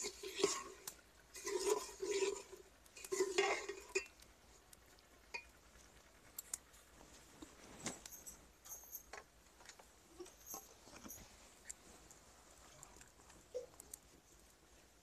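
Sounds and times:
spoon scraping in a pot: 0.0s - 4.2s.

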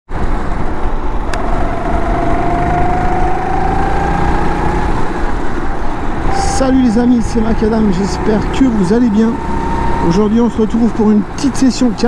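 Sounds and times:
heavy low rumble: 0.7s - 8.4s
kart engine revving: 1.2s - 6.6s, 8.0s - 10.4s.

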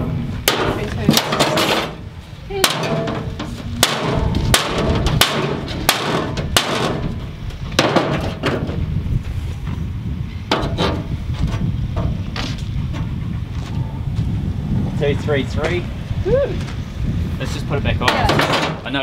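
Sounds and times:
steady low rumble: 0.0s - 19.0s
sharp knocks: 2.6s - 8.8s.

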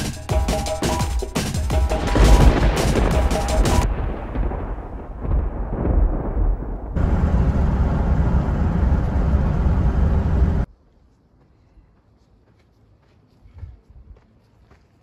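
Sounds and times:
deep rumble: 3.8s - 10.7s
car road and wind noise: 7.0s - 10.7s.

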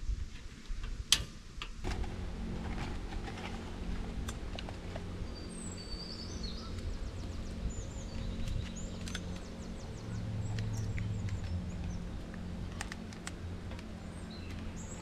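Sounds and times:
low hum: 1.8s - 15.0s
small birds chirping: 4.7s - 15.0s.

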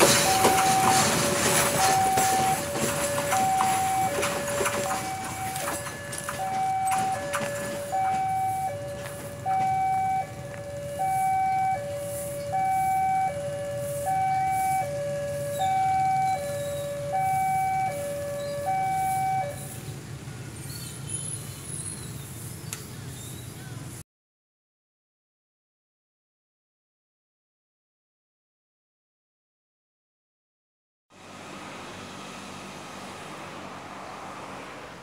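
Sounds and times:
two-tone hi-lo siren: 0.0s - 19.7s.

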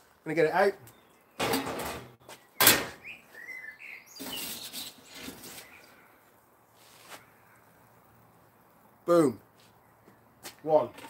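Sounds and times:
metal oven door clank: 1.4s - 3.0s
pizza peel scraping oven floor: 4.2s - 5.9s.

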